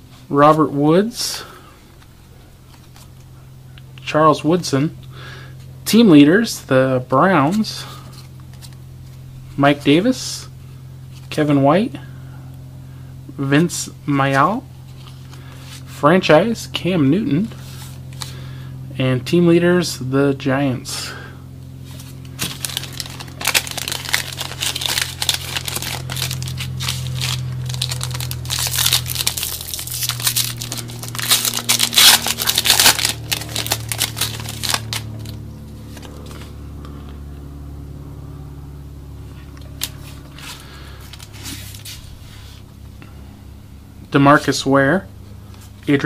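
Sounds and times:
foil wrapper tearing and crinkling: 0:22.0 - 0:35.4.

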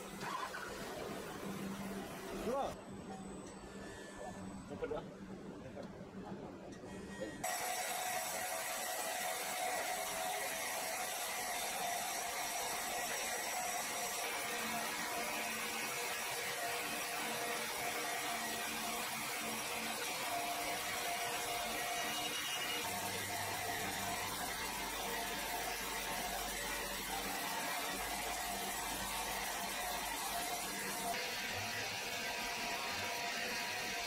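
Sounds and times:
band saw cutting log: 0:07.4 - 0:34.0.

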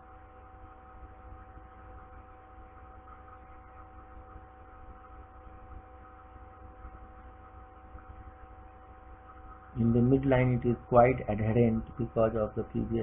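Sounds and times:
low electrical hum: 0:00.0 - 0:13.0
low hiss: 0:09.7 - 0:13.0.

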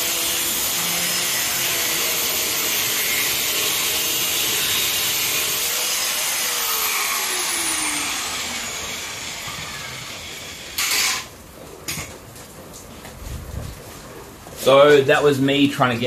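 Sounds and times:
cut-off saw grinding steel pipe: 0:00.0 - 0:11.3
saw motor coasting down: 0:00.0 - 0:11.3.

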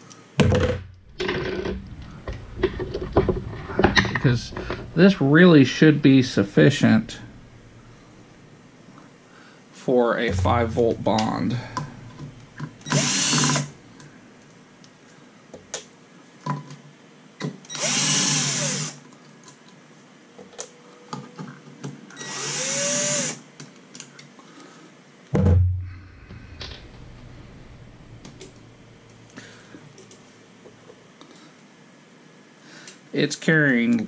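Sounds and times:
power tool motor spinning: 0:12.8 - 0:13.7, 0:17.7 - 0:19.0, 0:22.2 - 0:23.4
loud thump: 0:25.4 - 0:28.2.

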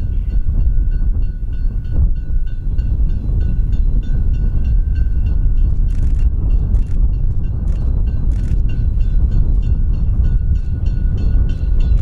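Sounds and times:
heavy low rumble: 0:00.0 - 0:12.0
steam locomotive exhaust beats: 0:00.0 - 0:12.0.

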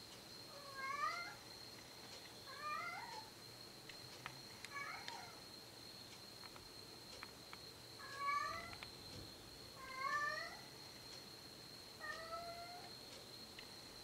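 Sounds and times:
cat meowing: 0:08.0 - 0:08.8, 0:09.8 - 0:10.7, 0:12.0 - 0:12.9.

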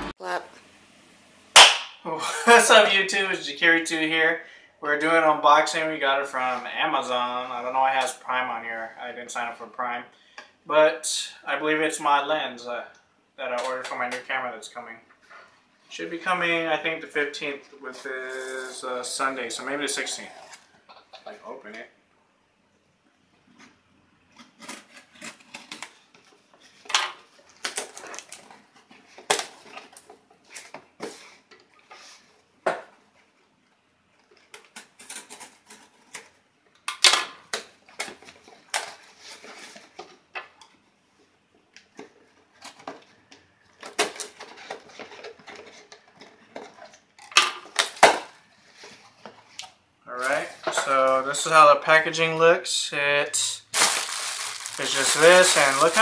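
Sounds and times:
cardboard rustling: 0:53.7 - 0:56.0.

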